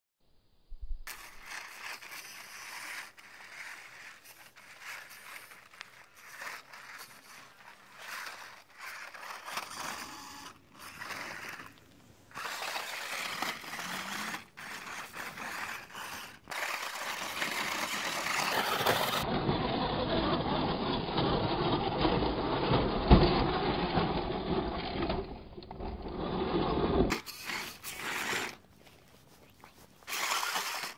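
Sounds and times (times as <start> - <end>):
small drive motor: 1.1 - 19.2, 30.1 - 30.9
tyres scraping and grinding on stone: 1.1 - 30.9.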